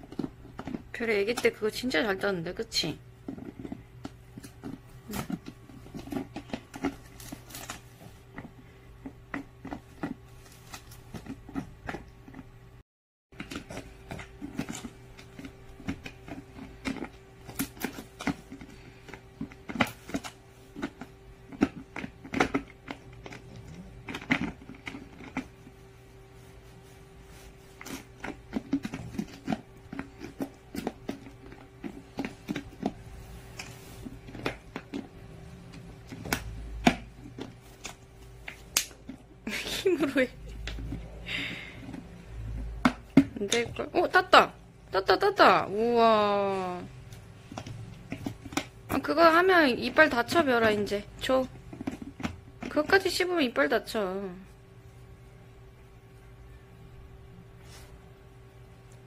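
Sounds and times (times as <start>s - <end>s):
dog gnawing plastic bottle: 0.0s - 1.6s, 3.2s - 12.4s, 13.4s - 25.8s, 26.4s - 43.9s, 47.1s - 49.0s, 51.5s - 53.0s
steady low hum: 0.0s - 59.0s.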